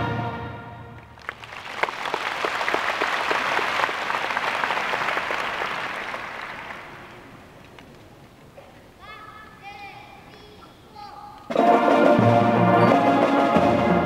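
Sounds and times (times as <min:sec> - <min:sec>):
audience applauding: 0:01.0 - 0:08.0.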